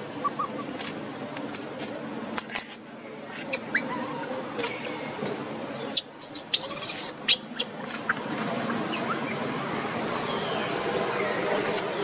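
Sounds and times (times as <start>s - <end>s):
background murmur: 0.0s - 12.0s
baby monkey squeaking: 6.0s - 7.7s, 8.9s - 11.0s, 11.6s - 12.0s.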